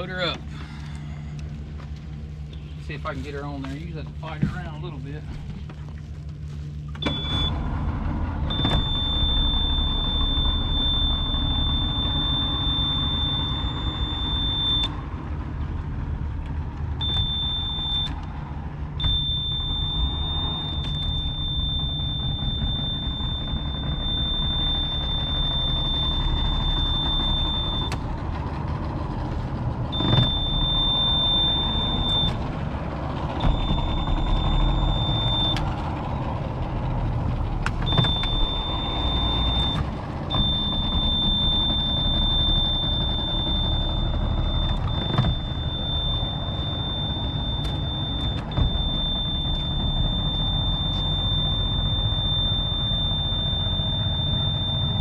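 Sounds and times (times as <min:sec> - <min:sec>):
outboard motor running: 0:00.0 - 0:55.0
high steady tone: 0:40.4 - 0:55.0.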